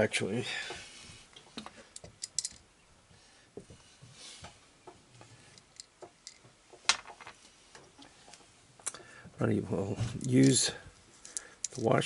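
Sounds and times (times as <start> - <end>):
metal hardware clicking and tapping: 1.9 - 2.6.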